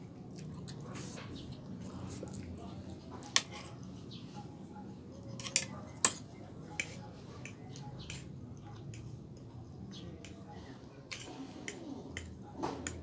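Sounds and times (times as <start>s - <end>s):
soft chewing: 0.0s - 13.0s
fork clinking against plate: 5.3s - 9.1s.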